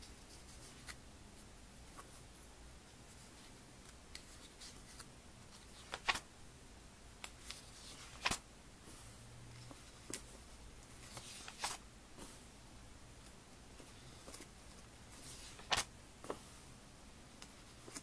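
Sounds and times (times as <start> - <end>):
paper pages rustling: 3.1 - 6.2, 7.3 - 8.4, 11.0 - 11.8, 13.8 - 16.4, 17.4 - 18.0.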